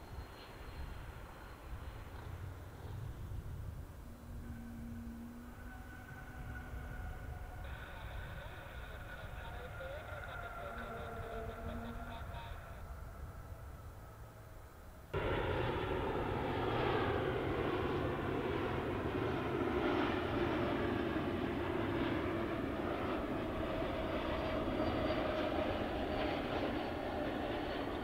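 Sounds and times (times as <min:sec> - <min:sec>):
jet engine rushing: 0:15.1 - 0:28.0.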